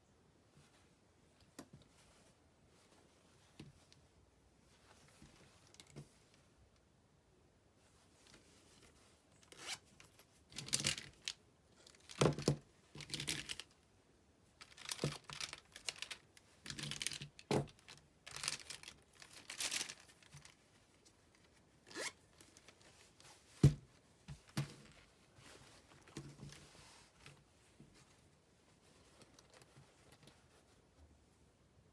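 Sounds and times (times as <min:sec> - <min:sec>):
zipper being pulled: 0:09.5 - 0:09.8, 0:21.9 - 0:22.3
pens rustling and clicking: 0:10.1 - 0:13.8, 0:14.6 - 0:20.6.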